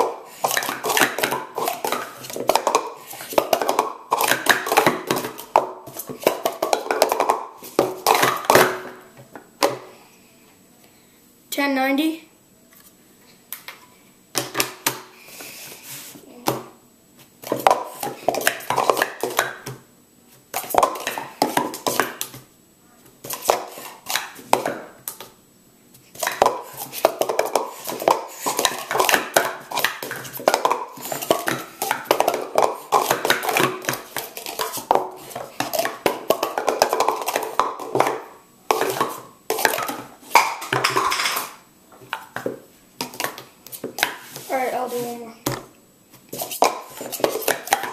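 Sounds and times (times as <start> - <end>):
plastic cups clattering: 0.0 - 9.9, 17.4 - 19.8, 20.5 - 22.4, 23.2 - 25.3, 26.1 - 45.7, 46.3 - 47.9.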